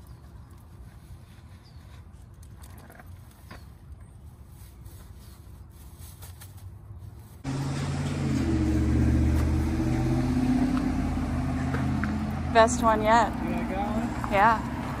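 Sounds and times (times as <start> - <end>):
vehicle engine running: 7.4 - 15.0.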